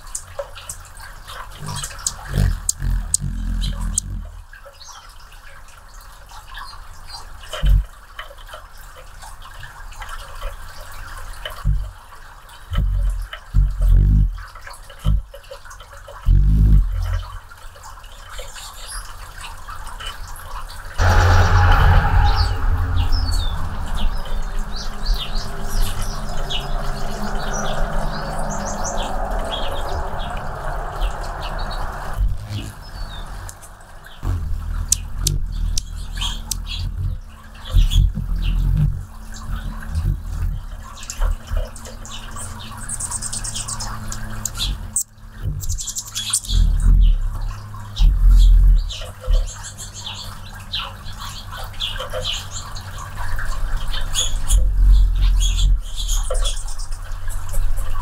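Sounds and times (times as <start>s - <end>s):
hummingbirds chirping: 0.0s - 5.3s, 12.5s - 15.3s, 21.0s - 58.0s
loud low hum: 1.6s - 4.6s, 21.0s - 42.9s.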